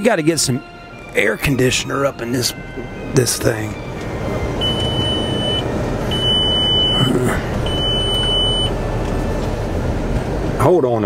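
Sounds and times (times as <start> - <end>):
car blower fan running: 0.3 - 11.0
electronic warning beeps: 4.4 - 8.8.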